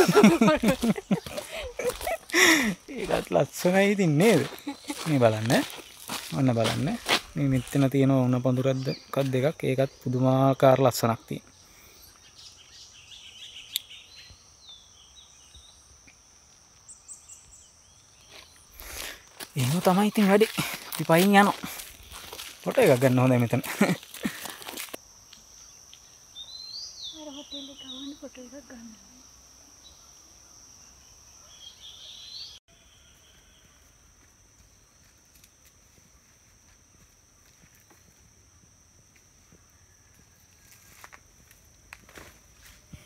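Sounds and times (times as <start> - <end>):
high-pitched insect drone: 0.0 - 31.2
bird chirps: 8.6 - 15.9, 25.6 - 28.4.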